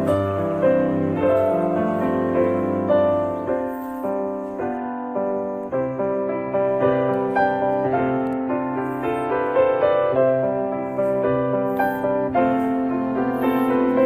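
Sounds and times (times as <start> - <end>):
slow piano music: 0.0 - 14.0.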